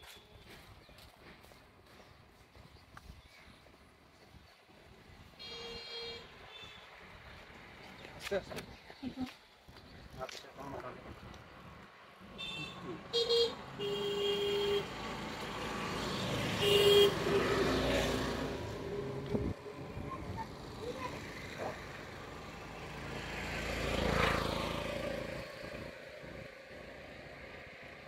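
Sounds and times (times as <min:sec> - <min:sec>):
vehicles passing: 0:00.0 - 0:28.0
vehicle horn toots: 0:05.4 - 0:06.8, 0:12.4 - 0:14.9, 0:16.2 - 0:17.7.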